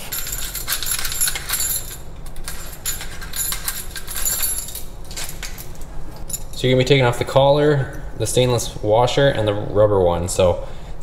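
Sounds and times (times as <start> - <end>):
metal clinking and jingling: 0.0 - 6.8.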